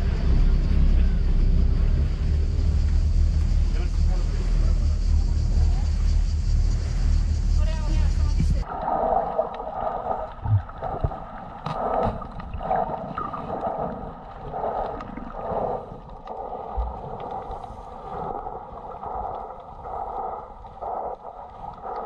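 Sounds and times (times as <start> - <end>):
dull low thumps: 0.0 - 8.6
underwater water sloshing and gurgling: 0.0 - 22.0.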